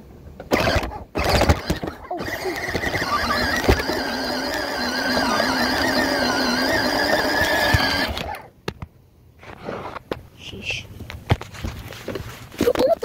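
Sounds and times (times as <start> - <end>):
toy car electric motor whining: 0.5 - 8.5.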